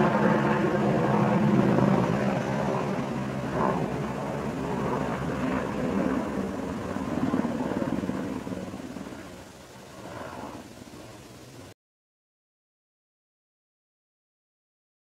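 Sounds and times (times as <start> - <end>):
low engine drone: 0.0 - 11.8.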